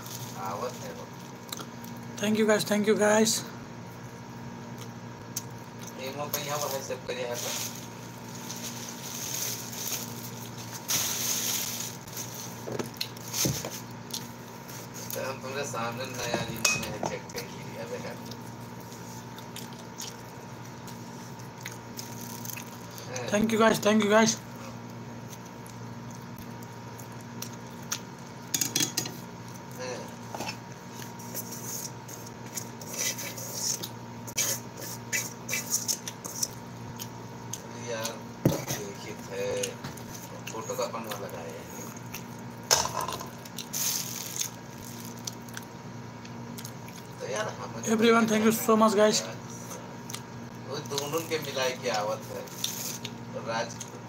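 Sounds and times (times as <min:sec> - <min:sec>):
low room hum: 0:00.0 - 0:54.0
wet chewing and mouth smacks: 0:01.2 - 0:02.1, 0:18.2 - 0:23.0, 0:25.3 - 0:28.4, 0:35.1 - 0:38.2, 0:43.3 - 0:47.2, 0:50.0 - 0:51.1
crisp wafer crackling: 0:06.0 - 0:15.4, 0:18.1 - 0:23.4, 0:43.3 - 0:47.2.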